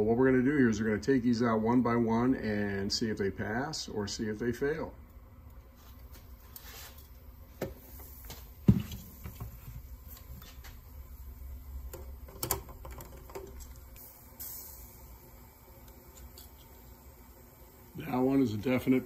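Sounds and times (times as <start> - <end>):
water boiling in saucepan: 7.1 - 19.0.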